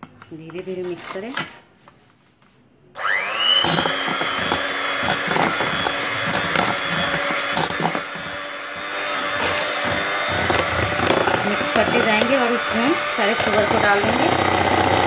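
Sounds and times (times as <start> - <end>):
electric hand mixer whine: 3.0 - 15.0.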